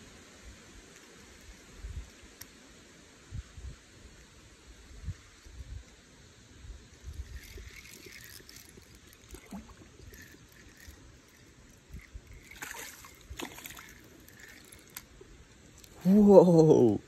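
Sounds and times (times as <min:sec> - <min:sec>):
low rumble of wind: 0:00.0 - 0:17.0
light clicks and rustles: 0:06.9 - 0:16.0.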